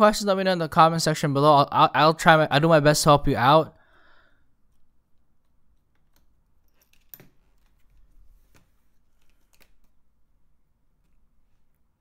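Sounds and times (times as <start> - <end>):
screwdriver and screws clicking: 4.7 - 8.0.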